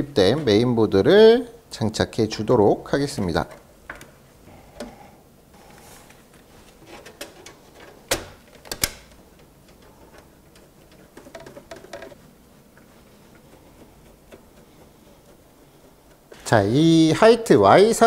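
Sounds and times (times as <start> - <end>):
clicks and knocks of handling parts: 3.1 - 5.0, 5.7 - 16.5.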